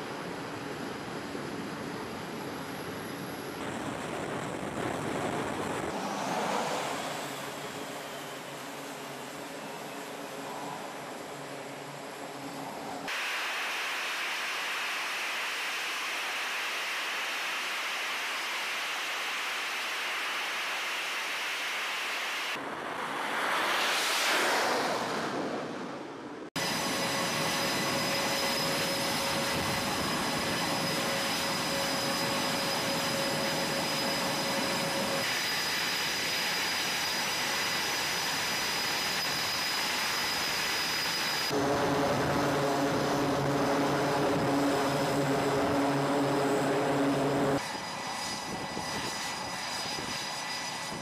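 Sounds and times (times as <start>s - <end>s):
jet engines high whine: 0.0s - 51.0s
jet engines roaring: 0.0s - 51.0s
jet launching: 13.1s - 50.9s.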